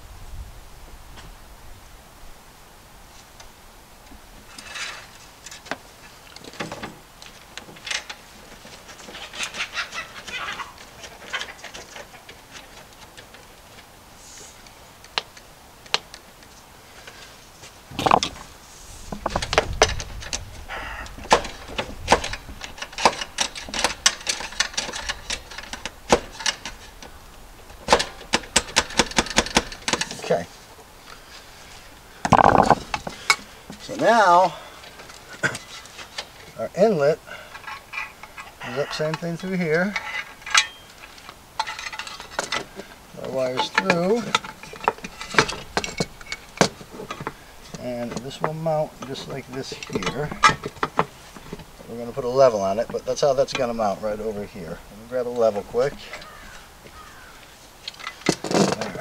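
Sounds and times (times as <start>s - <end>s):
lock nut scraping: 17.9s - 18.5s, 21.2s - 30.4s, 32.3s - 33.9s, 37.5s - 53.9s.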